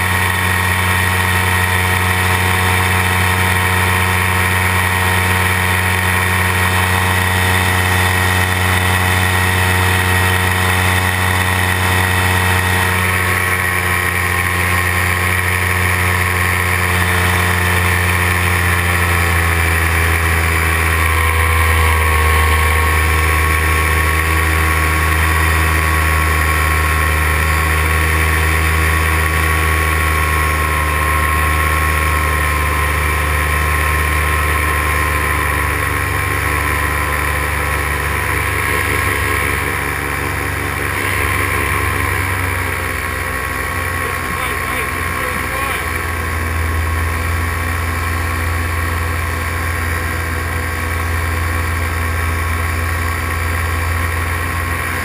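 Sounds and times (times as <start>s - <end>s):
paramotor engine drone: 0.0s - 55.0s.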